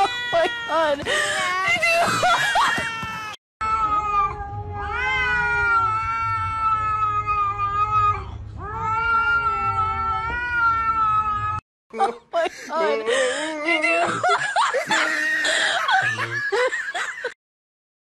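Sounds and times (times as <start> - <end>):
cat yowling: 2.8 - 11.6.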